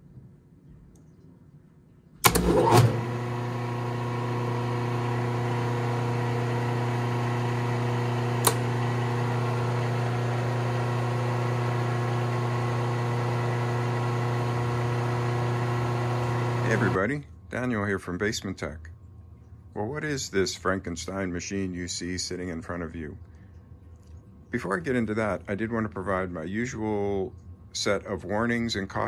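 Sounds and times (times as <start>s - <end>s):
low electrical hum: 0.0s - 13.2s, 16.7s - 29.0s
motor switching on clunk: 2.2s - 17.0s.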